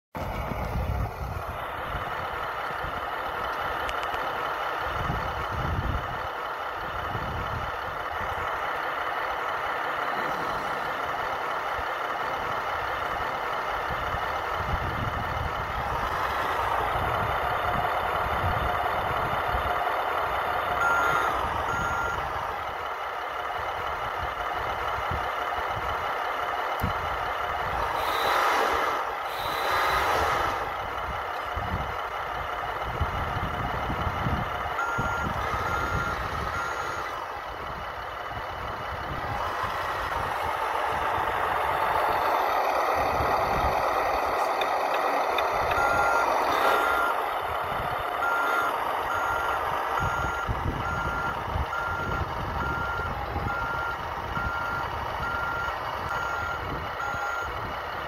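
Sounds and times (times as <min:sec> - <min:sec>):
short beeps: 0:20.8 - 0:22.3, 0:34.8 - 0:37.2, 0:45.6 - 0:47.2, 0:48.2 - 0:57.6.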